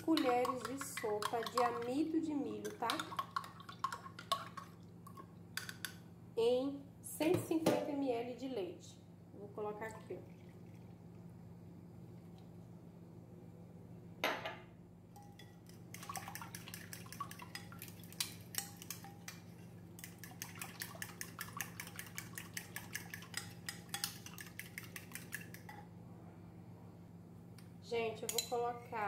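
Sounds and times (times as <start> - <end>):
glass set down on stone counter: 14.2 - 14.6.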